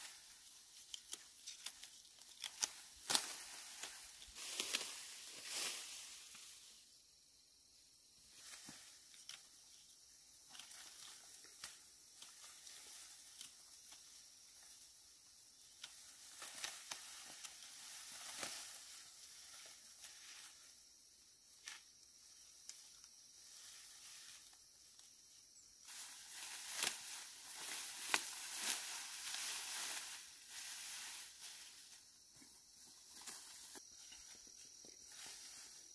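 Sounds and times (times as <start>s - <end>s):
rice plants rustling and crackling: 0.0s - 6.6s, 15.6s - 20.6s, 25.8s - 32.2s
steady high hiss: 0.0s - 35.9s.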